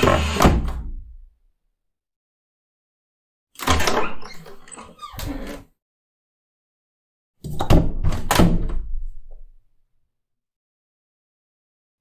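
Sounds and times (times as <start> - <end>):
door knocks and thuds: 7.4 - 9.0.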